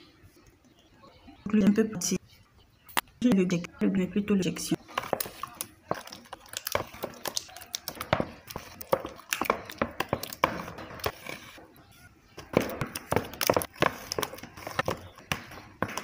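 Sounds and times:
plastic tubes clicking and tapping: 4.9 - 11.2.

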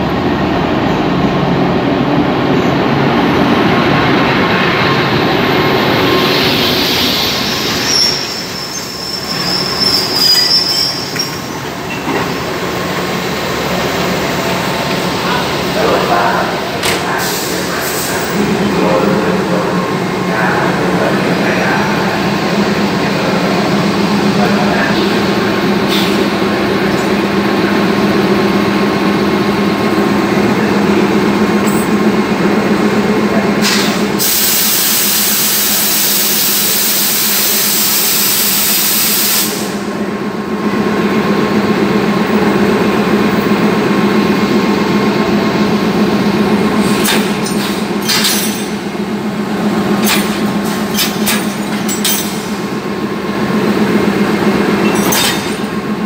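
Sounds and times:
diesel locomotive idling: 0.0 - 56.0
loud hiss: 33.6 - 39.8.

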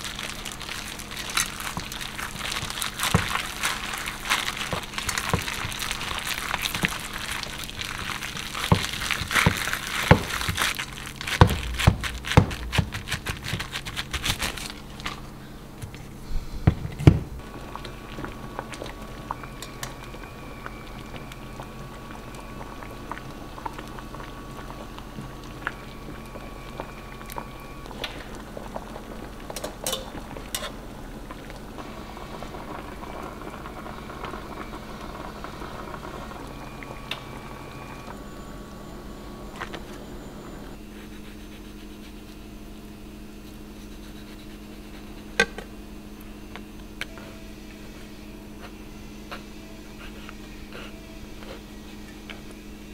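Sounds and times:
hands squishing ground meat: 0.0 - 15.3
pot of water simmering: 0.0 - 15.8, 16.7 - 40.7.

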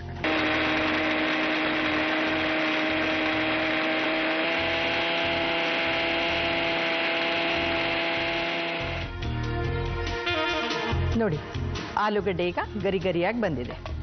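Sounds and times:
grinder jar churning: 0.2 - 9.1
mixer grinder motor whine: 0.2 - 9.3.

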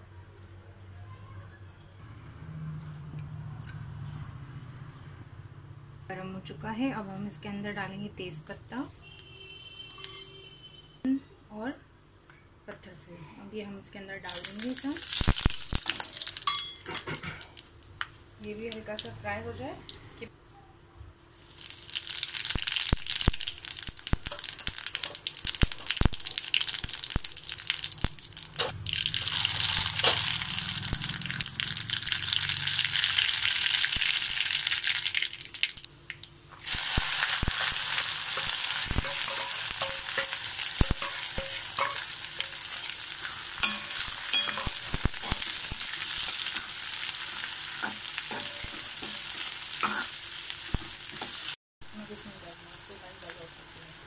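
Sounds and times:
spices sizzling in hot oil: 14.2 - 20.0, 21.2 - 54.0
onions frying: 14.2 - 20.1, 21.2 - 54.0.

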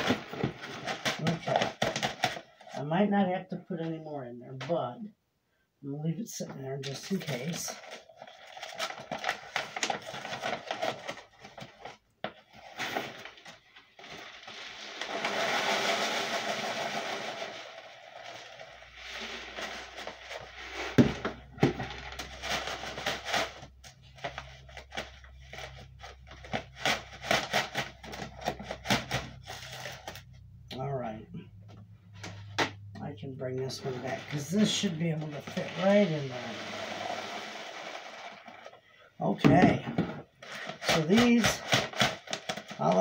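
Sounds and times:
dry food pouring into bag: 14.1 - 21.0, 35.1 - 38.6
bag crinkling and rustling: 33.7 - 38.8.

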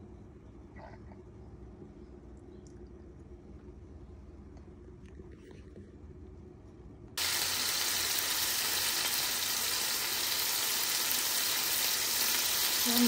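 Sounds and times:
chicken sizzling in oil: 7.2 - 13.0.

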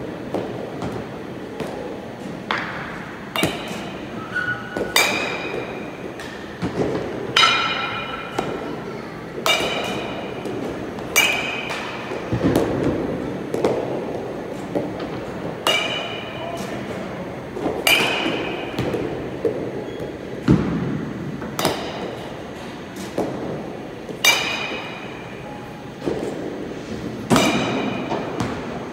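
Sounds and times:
metal bat striking baseball: 3.3 - 4.0, 4.8 - 8.6, 9.4 - 10.3, 11.2 - 12.7, 15.6 - 16.4, 17.8 - 19.1, 24.2 - 25.2, 27.3 - 28.6.

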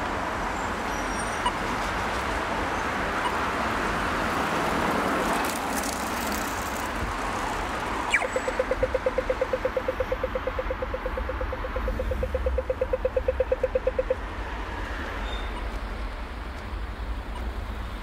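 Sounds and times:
road traffic: 0.0 - 18.0
crossing signal beeping rapidly: 8.1 - 14.2.

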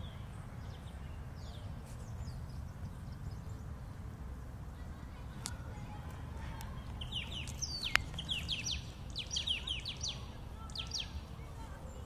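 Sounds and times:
steady low rumble: 0.0 - 12.0
small bird chirping: 6.6 - 12.0.

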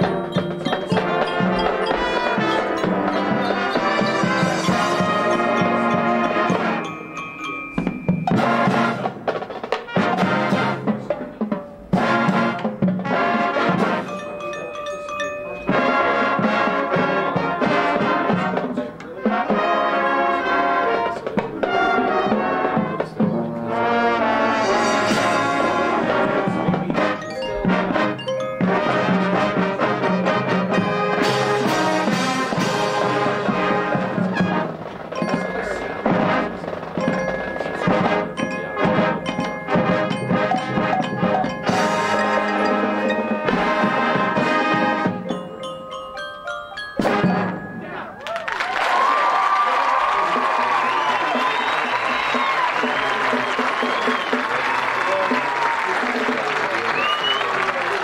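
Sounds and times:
loud brass chords: 0.0 - 7.3, 8.3 - 11.1, 11.9 - 14.6, 15.6 - 45.6, 47.0 - 48.2
marching band playing: 0.0 - 58.0.

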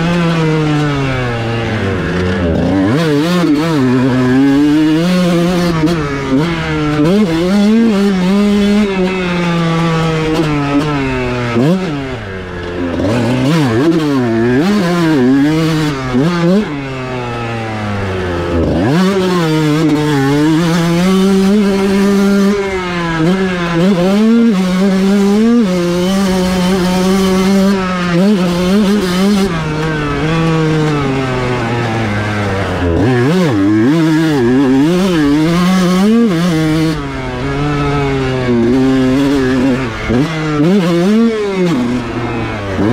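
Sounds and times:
motocross engine revving: 0.0 - 42.9.

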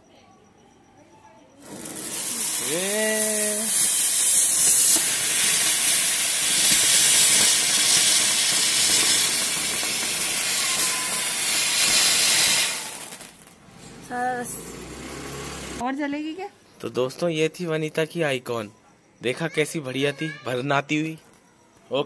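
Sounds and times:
firework sparks hissing: 1.6 - 13.6.

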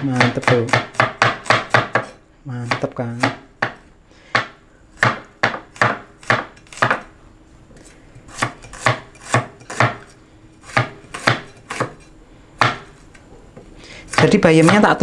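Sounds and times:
cleaver chopping on wooden board: 0.1 - 2.1, 4.4 - 7.0, 8.4 - 10.0, 10.7 - 12.0, 12.6 - 12.9.

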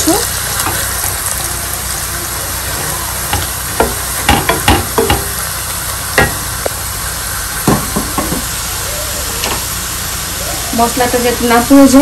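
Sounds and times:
onions sizzling in oil: 0.0 - 12.0
spatula knocking against pan: 3.3 - 5.3.

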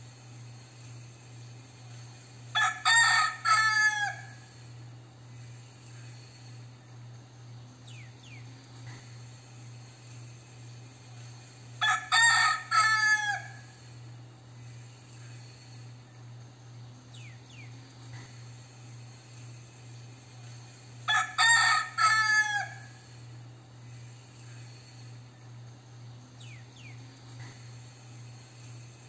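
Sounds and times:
rooster crowing: 2.5 - 4.6, 11.8 - 13.9, 21.0 - 23.2.

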